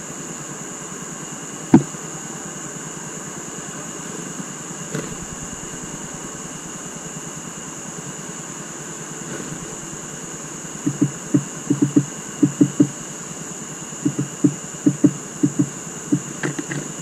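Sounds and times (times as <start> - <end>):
sharp clicks: 10.8 - 13.0, 14.1 - 17.0.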